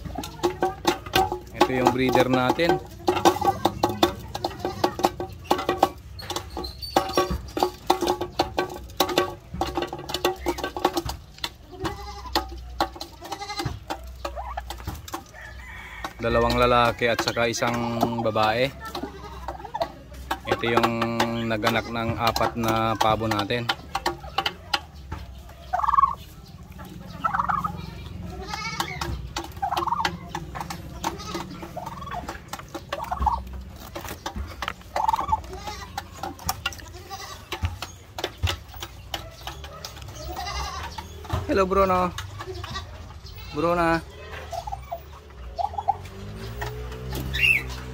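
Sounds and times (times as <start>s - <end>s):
turkeys calling: 0.0s - 47.9s
farm animals bleating: 1.6s - 5.3s, 11.5s - 14.5s, 15.3s - 19.8s, 20.4s - 23.6s, 27.1s - 29.2s, 30.8s - 32.3s, 34.4s - 37.8s, 40.1s - 44.8s
rattling turkey call: 25.7s - 26.2s, 27.2s - 27.7s, 28.5s - 30.1s, 31.1s - 34.1s, 34.9s - 35.6s, 47.3s - 47.8s.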